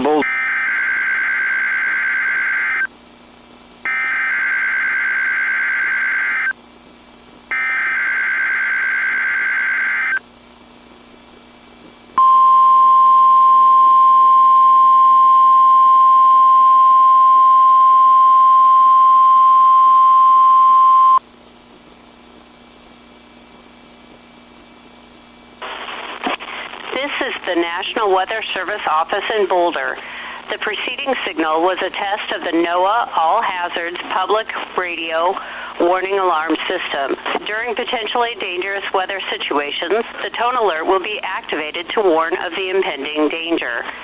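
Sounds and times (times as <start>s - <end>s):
steady warning alarm tone: 3.9s - 6.5s, 7.5s - 10.2s.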